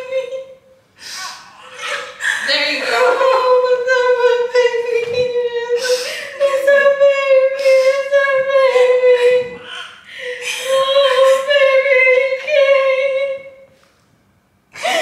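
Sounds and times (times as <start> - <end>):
newborn baby crying: 1.0 - 4.5, 7.7 - 12.1.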